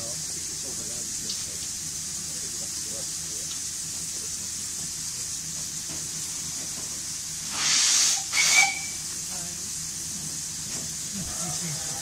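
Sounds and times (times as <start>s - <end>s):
steam hissing from locomotive: 0.0s - 12.0s
loud rush of steam: 6.0s - 12.0s.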